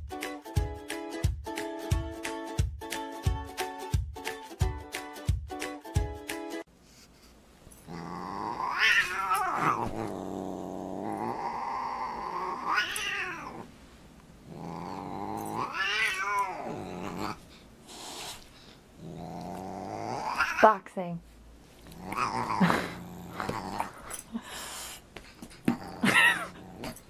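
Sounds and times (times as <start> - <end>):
cat yowling and growling: 7.9 - 13.7, 14.6 - 17.4, 19.5 - 20.7, 21.9 - 23.9.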